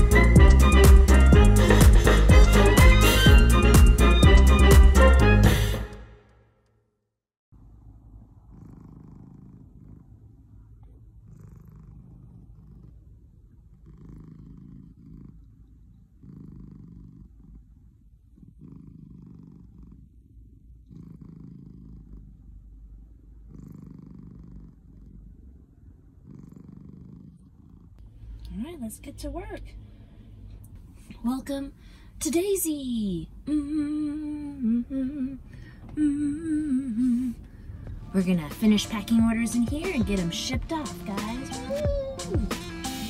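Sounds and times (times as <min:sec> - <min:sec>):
cat purring: 0:07.6 - 0:29.8, 0:30.8 - 0:43.0.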